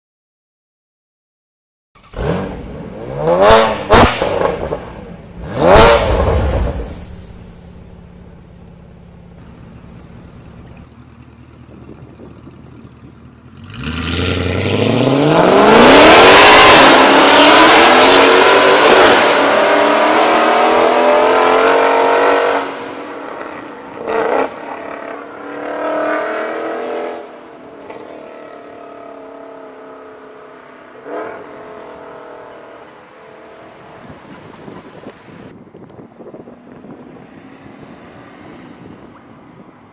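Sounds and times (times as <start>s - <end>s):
car engine revving: 2.0s - 8.7s, 13.5s - 33.0s.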